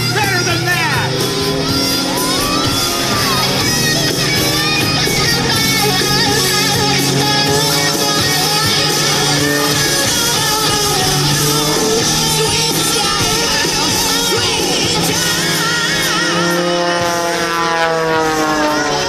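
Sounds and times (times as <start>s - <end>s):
propeller plane engine drone: 0.0s - 19.0s
rock music with singing: 0.0s - 19.0s.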